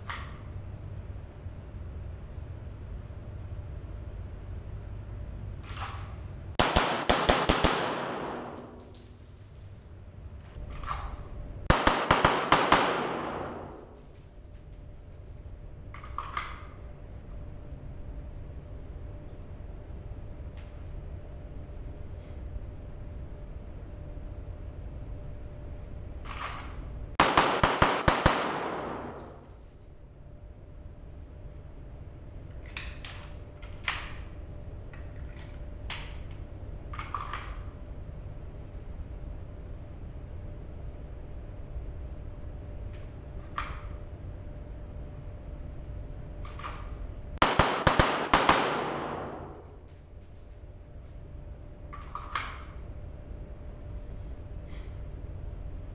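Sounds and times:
steady low hum: 0.0s - 55.9s
pistol shots echoing indoors: 5.7s - 9.6s, 11.7s - 14.7s, 27.2s - 30.0s, 46.5s - 50.5s
pistol clicking: 8.3s - 9.8s.

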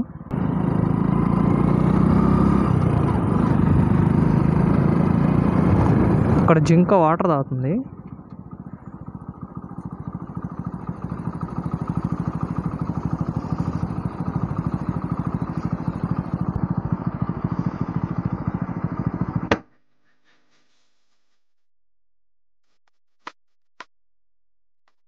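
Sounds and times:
motorcycle engine running: 0.0s - 19.7s.

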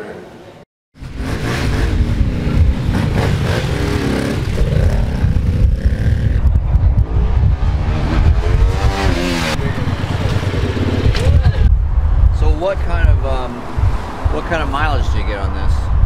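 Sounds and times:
motorcycle engine revving: 1.0s - 11.7s.

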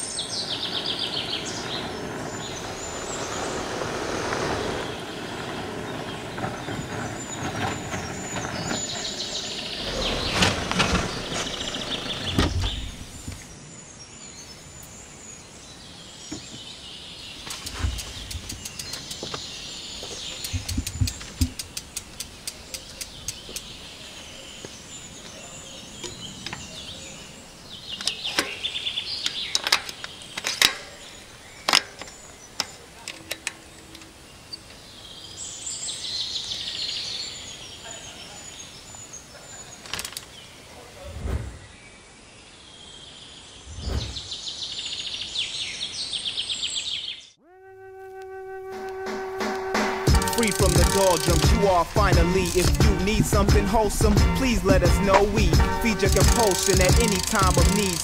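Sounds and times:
birds chirping: 0.0s - 47.4s, 49.2s - 58.0s
car driving on dirt track: 0.1s - 13.4s
mountain bike clicks and knocks: 17.4s - 23.8s, 27.9s - 34.8s, 39.7s - 40.4s, 50.1s - 54.2s, 55.1s - 58.0s.

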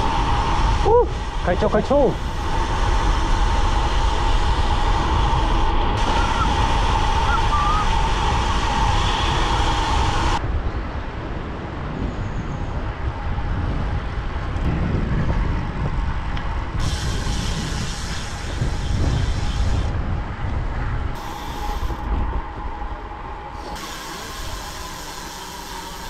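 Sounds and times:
wind buffeting microphone: 0.0s - 24.8s
bright hiss: 16.8s - 19.9s, 21.2s - 22.2s, 23.5s - 26.0s.

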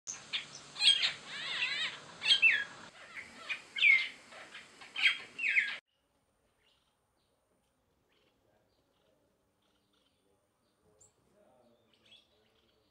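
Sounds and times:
starling whistles and chirps: 0.1s - 5.8s.

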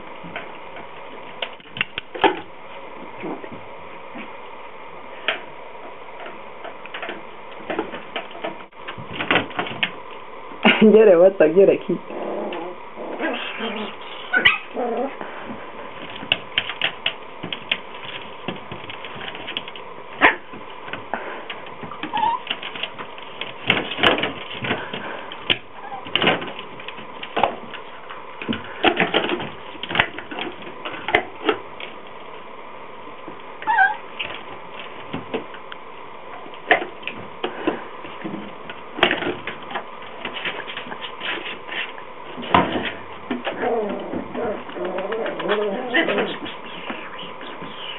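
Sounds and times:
puppy whimpering: 12.1s - 15.2s, 22.0s - 22.5s, 25.8s - 26.1s, 33.6s - 34.1s, 43.6s - 47.9s
knocks and scrapes: 36.6s - 47.9s.

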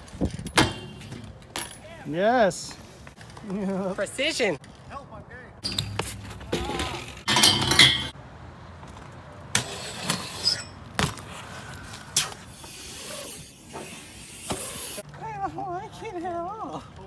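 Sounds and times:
bike knocks and metallic clinks: 0.0s - 2.1s, 5.6s - 8.2s, 8.8s - 11.3s
bike tyres rolling on concrete: 0.0s - 17.0s.

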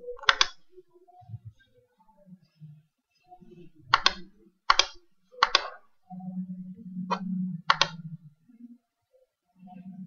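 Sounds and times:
computer mouse clicking: 0.0s - 0.7s, 3.9s - 5.9s, 7.1s - 8.1s
low steady hum: 0.0s - 10.0s.

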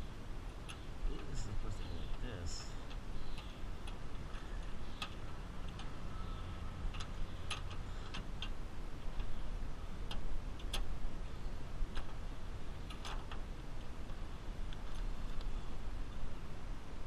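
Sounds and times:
steady low hum: 0.0s - 17.0s
light clicks and taps: 0.6s - 5.9s, 6.9s - 9.3s.

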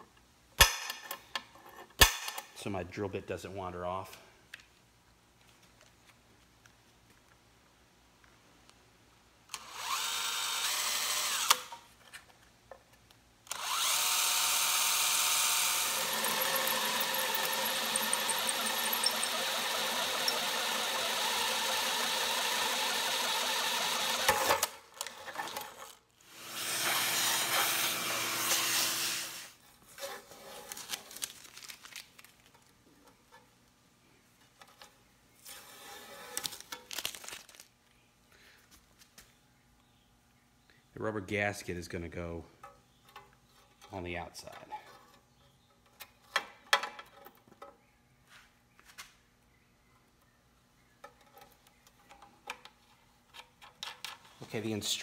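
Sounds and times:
cordless drill cutting metal: 9.6s - 11.8s, 13.5s - 24.8s, 26.3s - 29.5s.

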